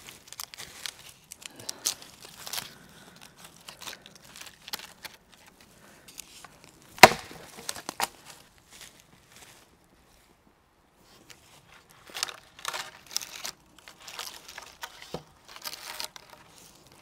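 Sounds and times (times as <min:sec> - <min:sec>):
wooden sticks knocking and cracking: 0:06.4 - 0:08.2, 0:12.1 - 0:17.0.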